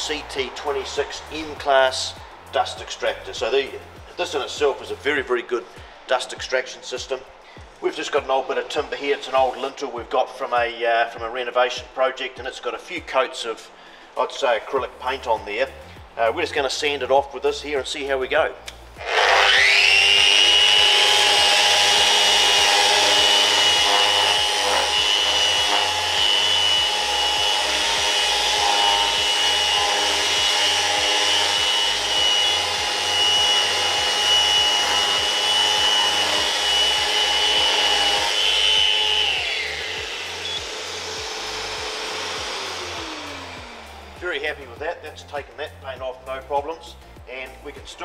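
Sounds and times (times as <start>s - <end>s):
orbital sander whining: 0.0s - 5.1s, 18.8s - 45.1s
dust extractor running: 19.0s - 44.6s
sanding paint off timber: 19.1s - 46.5s.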